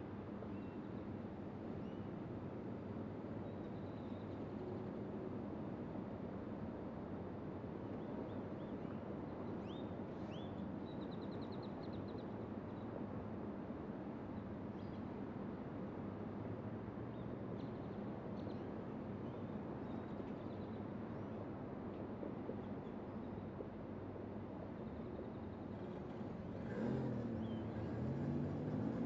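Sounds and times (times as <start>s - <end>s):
road traffic hum: 25.6s - 29.0s.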